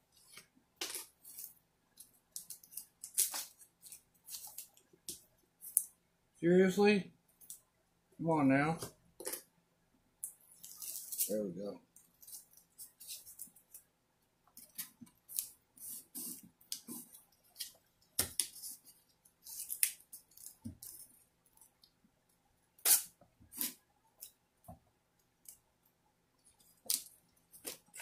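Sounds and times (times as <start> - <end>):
tape crinkling and snapping: 0.3 - 5.9, 19.2 - 22.0, 26.6 - 28.0.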